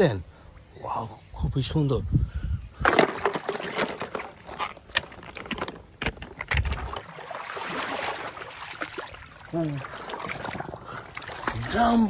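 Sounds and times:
plastic toys knocking together: 2.8 - 6.8
water sloshing and splashing: 2.8 - 12.0.

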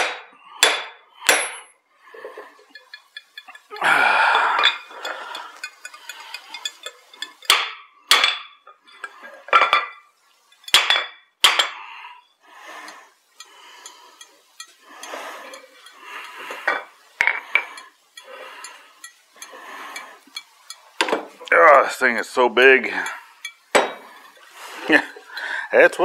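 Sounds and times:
hammer striking steel: 0.0 - 1.7, 10.7 - 11.8, 23.7 - 24.0.

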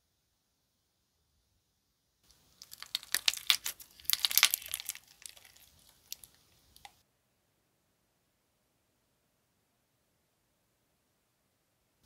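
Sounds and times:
slime crackling and popping: 2.3 - 7.0.

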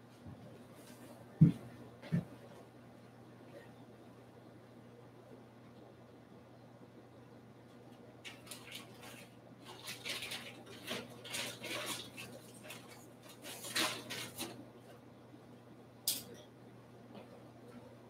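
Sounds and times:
cards and packaging rustling: 8.3 - 14.6.

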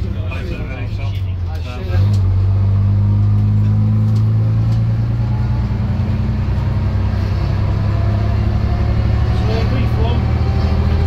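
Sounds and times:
bus diesel engine running: 0.0 - 11.0.

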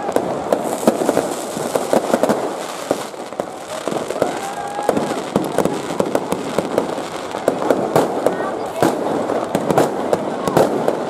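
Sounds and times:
firework whistling: 0.0 - 11.0
fireworks bangs: 0.0 - 11.0
fireworks crackle: 0.0 - 11.0.

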